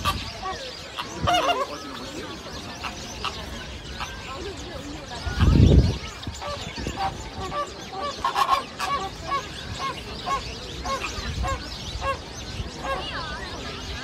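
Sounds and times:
flamingos honking: 0.0 - 14.0.

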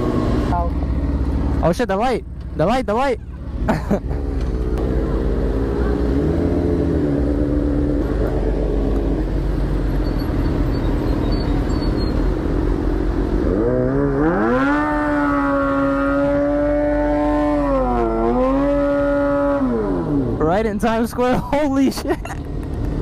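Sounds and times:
motorcycle engine revving high: 4.6 - 9.3, 13.4 - 20.4.

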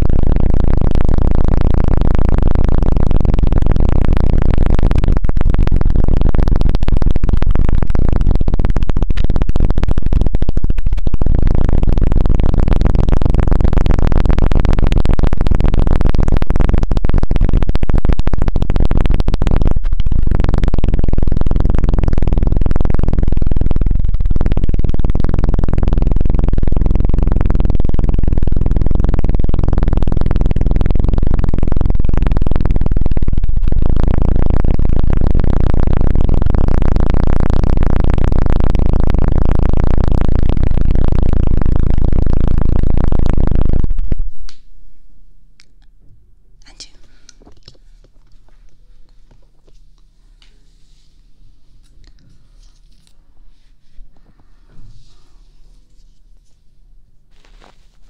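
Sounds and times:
fingers rubbing microphone: 0.0 - 44.5, 46.6 - 58.0.

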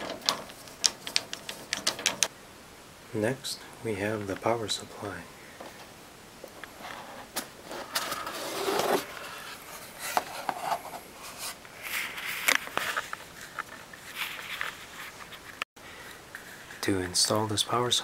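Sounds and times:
cardboard flaps scraping: 6.8 - 15.6.

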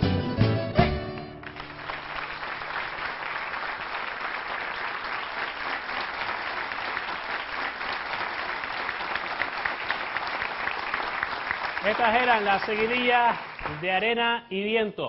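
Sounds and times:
plucked string ensemble: 0.0 - 1.8
audience applauding: 1.2 - 14.0.

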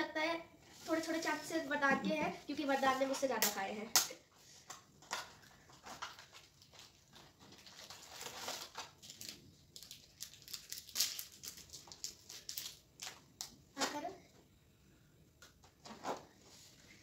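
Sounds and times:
wrapper crinkling and crackling: 5.0 - 13.6.

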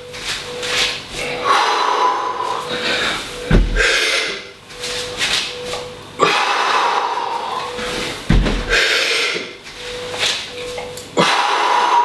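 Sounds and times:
man breathing heavily: 1.2 - 4.6, 6.2 - 10.1, 11.2 - 12.0
dull low thud: 3.5 - 3.8, 8.3 - 8.7.

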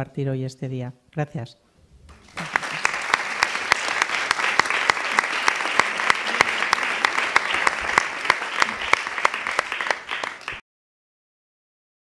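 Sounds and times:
audience applauding: 2.1 - 10.6.

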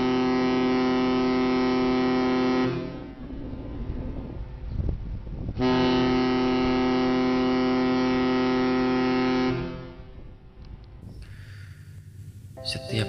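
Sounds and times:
ship's horn blast: 0.0 - 3.0, 5.6 - 10.1
low rumble: 2.8 - 5.6.

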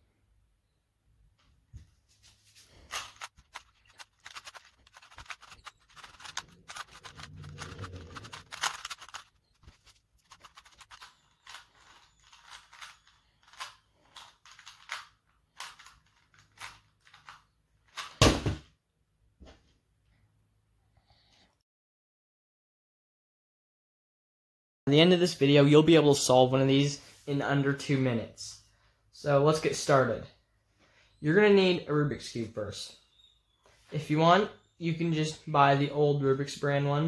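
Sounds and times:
puzzle cube clicking: 2.9 - 17.3.

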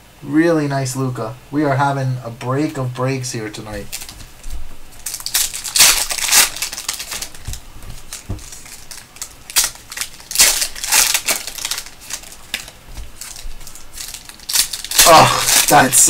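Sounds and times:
foil wrapper crinkling: 3.5 - 16.0
foil wrapper tearing: 3.7 - 16.0.

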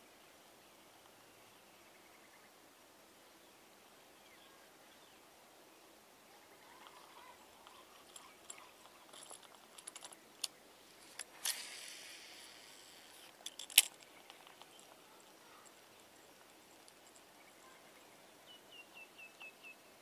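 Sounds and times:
reel click: 6.8 - 15.0
rod and reel handling clicks: 6.8 - 15.0
spool whirring: 6.8 - 17.2.

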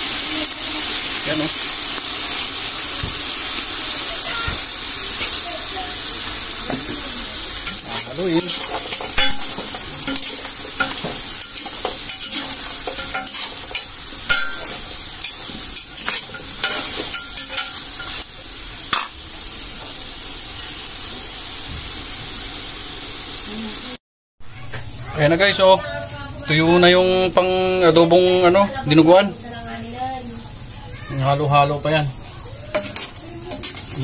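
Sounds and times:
meat sizzling in a pot: 0.0 - 34.0
spatula scraping a metal pot: 7.6 - 18.2.

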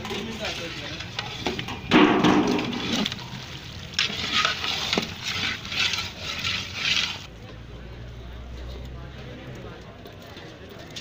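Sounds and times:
ladle clanging against metal pot: 0.0 - 3.2
ladle swishing through water: 2.7 - 7.3.

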